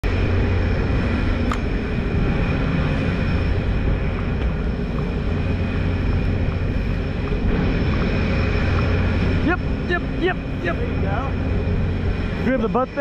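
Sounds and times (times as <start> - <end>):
boat engine droning: 0.0 - 13.0
faint high whine: 0.0 - 13.0.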